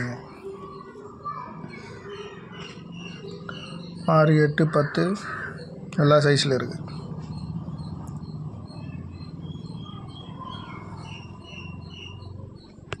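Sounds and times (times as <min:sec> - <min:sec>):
birds chirping: 0:00.0 - 0:13.0
steady low hum: 0:02.8 - 0:13.0.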